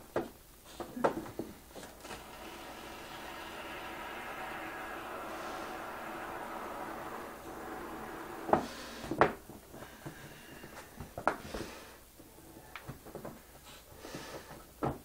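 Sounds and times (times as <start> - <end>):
steady hum: 1.7 - 9.2.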